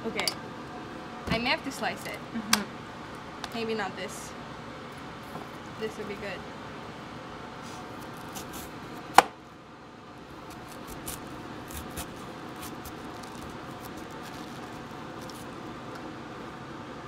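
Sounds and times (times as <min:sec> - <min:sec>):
ventilation hum: 0:00.0 - 0:17.0
knife slicing cabbage: 0:07.9 - 0:09.3, 0:10.4 - 0:15.5.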